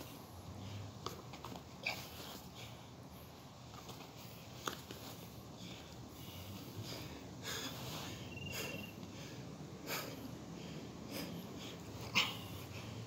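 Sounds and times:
man breathing hard: 1.8 - 13.0
high chirp: 8.2 - 9.0.

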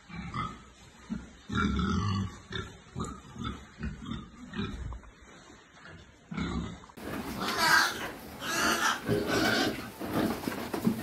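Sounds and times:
pigs grunting: 6.3 - 11.0.

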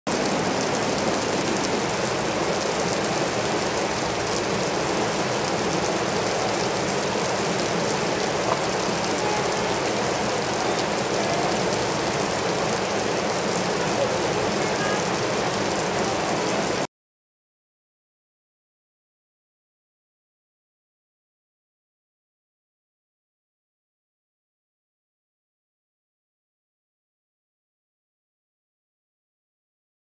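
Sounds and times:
small waterfall spattering: 0.1 - 16.9.

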